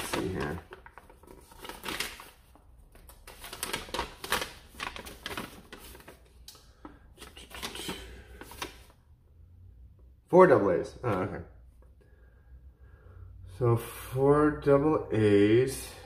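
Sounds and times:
paper leaflet rustling: 0.0s - 6.4s, 7.2s - 9.0s.

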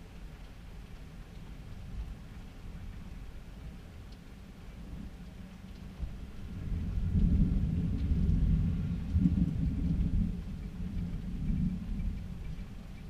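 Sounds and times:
thunder rumbling: 4.8s - 13.0s.

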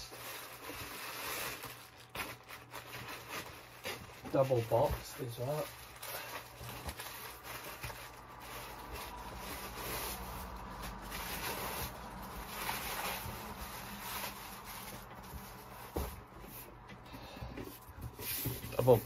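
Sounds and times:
cardboard rubbing and scraping: 6.5s - 16.8s, 17.9s - 19.0s.

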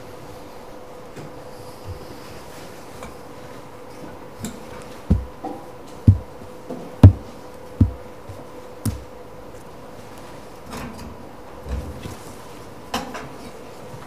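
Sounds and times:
faint steady hum: 0.0s - 14.0s
dull knocks and thumps: 5.1s - 6.4s, 7.0s - 9.1s.

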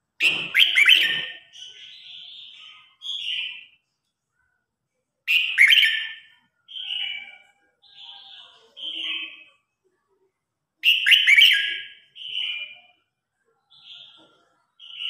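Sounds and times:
bird singing whistled notes: 0.2s - 3.7s, 5.3s - 7.2s, 10.8s - 12.9s.

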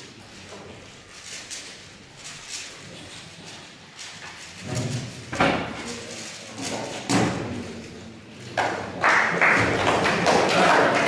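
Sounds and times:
dull thumps in a large hall: 4.6s - 6.0s, 6.6s - 7.9s, 8.5s - 11.0s.

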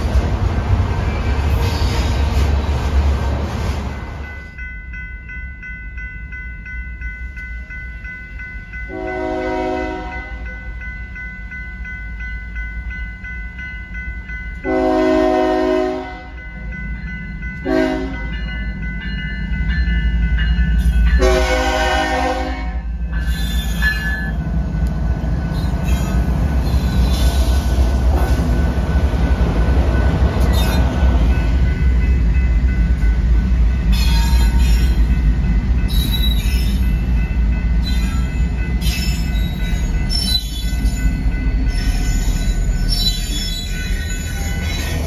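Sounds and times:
crossing warning bell: 3.9s - 45.0s
locomotive air horn blasts: 8.9s - 10.4s, 14.7s - 16.4s, 17.6s - 18.2s, 21.2s - 22.9s.

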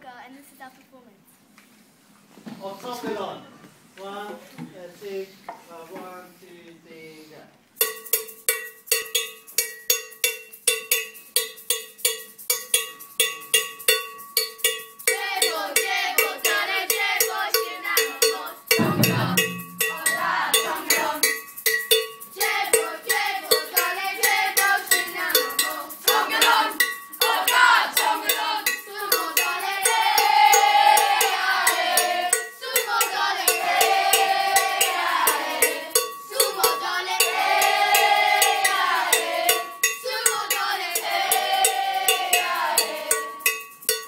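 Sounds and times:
children singing: 15.1s - 21.4s, 22.4s - 43.4s
djembe drums playing: 17.6s - 21.5s, 22.7s - 43.4s.

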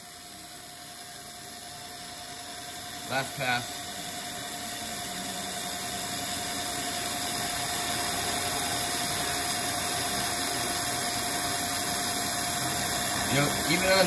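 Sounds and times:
coolant mist spray hissing: 2.6s - 14.0s
milling cutter cutting steel: 3.0s - 14.0s.

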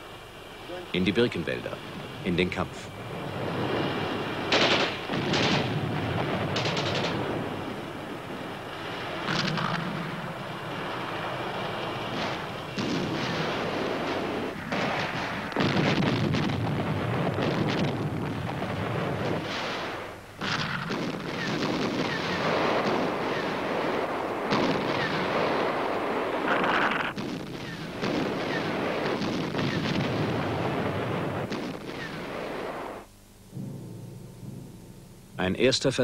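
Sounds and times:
explosions: 3.2s - 7.9s, 8.8s - 33.0s
continuous gunfire: 4.5s - 7.5s, 12.1s - 33.0s.

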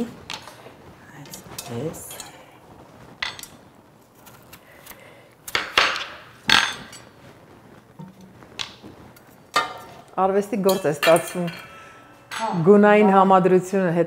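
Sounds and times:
potatoes clinking in steel pan: 9.5s - 12.6s.

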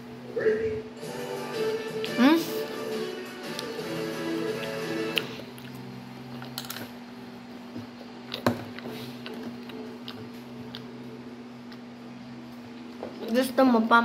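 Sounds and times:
steady low hum: 0.0s - 14.0s
close-up chewing: 4.6s - 6.8s, 7.6s - 13.4s.

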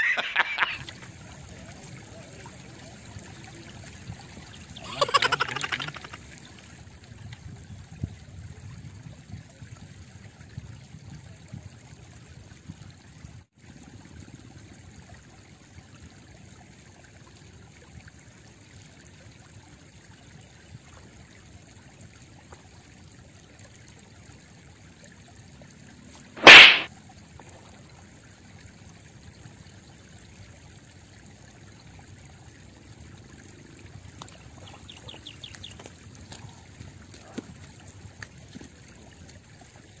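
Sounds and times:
loud sharp sound: 26.4s - 26.9s.

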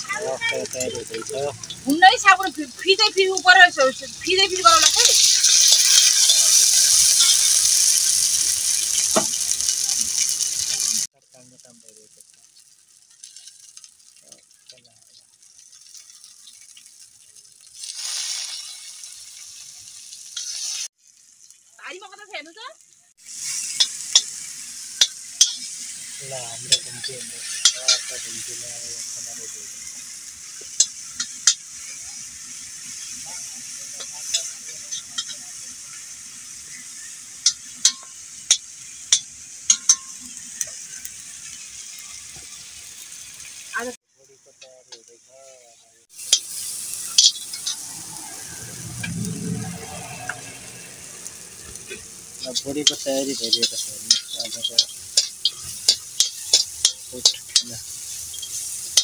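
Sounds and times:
food sizzling in hot oil: 0.0s - 59.0s
metal spoon scraping a pan: 4.7s - 11.0s, 20.4s - 20.9s, 23.3s - 28.4s, 30.5s - 36.1s, 46.2s - 47.9s, 51.6s - 59.0s
utensil clicking against pan: 52.8s - 59.0s.

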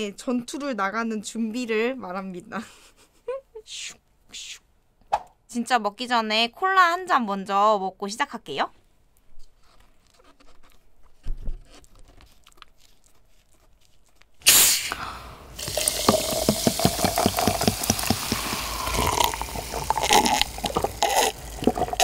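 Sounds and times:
hiss of escaping gas: 14.4s - 21.4s
drink fizzing: 14.5s - 22.0s
cola pouring over ice: 15.4s - 22.0s
bottle cap twisting open: 15.6s - 22.0s.

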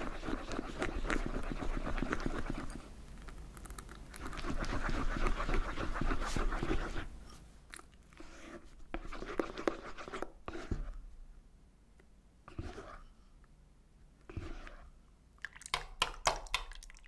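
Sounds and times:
spatula stirring cream in a bowl: 0.0s - 7.4s, 8.1s - 11.1s, 12.4s - 13.2s, 14.2s - 15.0s.

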